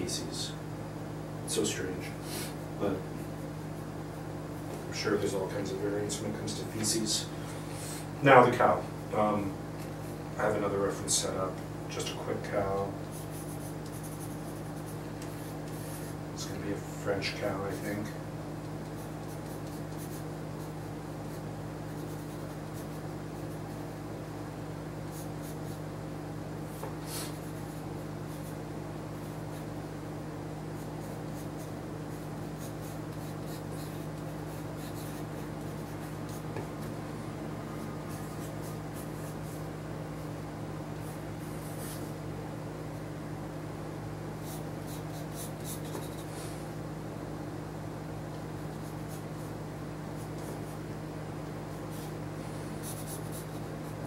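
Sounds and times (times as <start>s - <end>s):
steady low hum: 0.0s - 54.0s
pencil scratching on paper: 12.7s - 16.2s, 18.8s - 23.9s, 25.1s - 25.8s, 26.7s - 29.7s, 30.8s - 36.7s, 37.8s - 39.7s, 44.4s - 46.6s, 51.7s - 54.0s.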